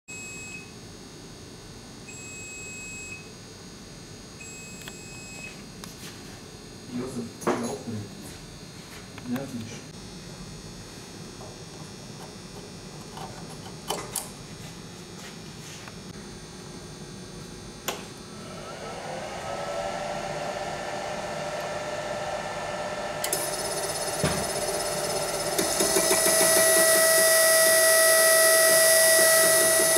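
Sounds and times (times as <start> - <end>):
servo motor electric whine: 18.2 - 29.9.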